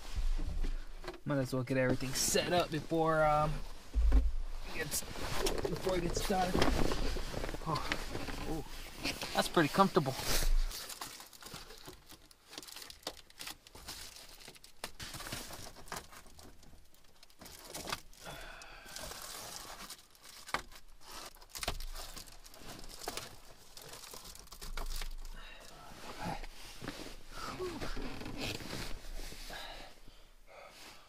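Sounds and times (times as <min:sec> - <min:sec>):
bedding and clothing rustling: 0:00.0 - 0:11.8, 0:21.0 - 0:30.2
window covers crinkling: 0:04.6 - 0:18.3, 0:19.0 - 0:29.6.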